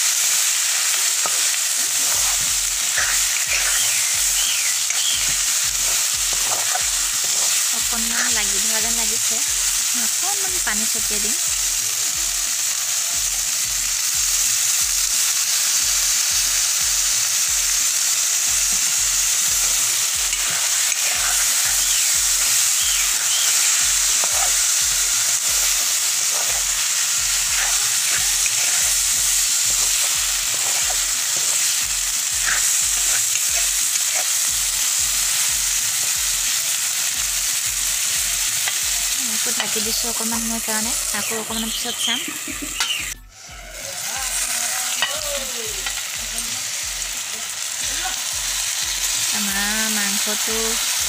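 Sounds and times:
food sizzling in a pan: 0.0 - 51.0
metal spatula scraping pan: 1.2 - 3.9, 20.3 - 21.9, 27.4 - 28.9.

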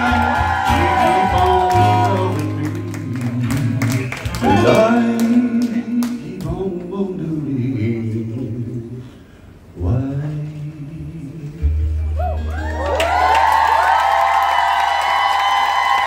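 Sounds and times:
person singing: 0.0 - 9.1.

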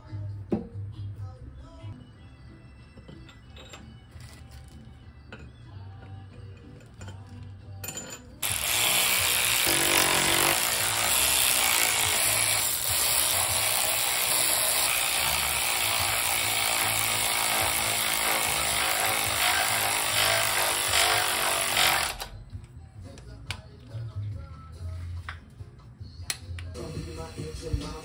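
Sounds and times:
cordless power ratchet running: 8.4 - 22.3.

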